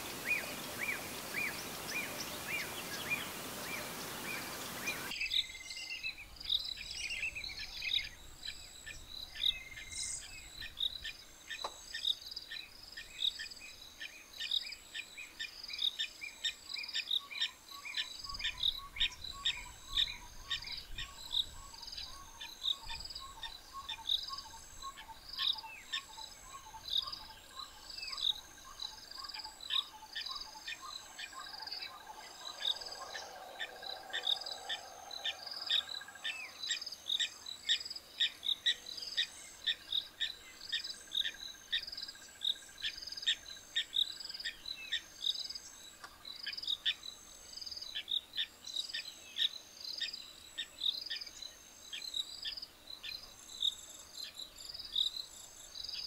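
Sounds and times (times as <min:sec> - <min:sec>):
bird calls: 0:00.0 - 0:12.2, 0:16.9 - 0:45.1
insects chirping: 0:00.0 - 0:56.0.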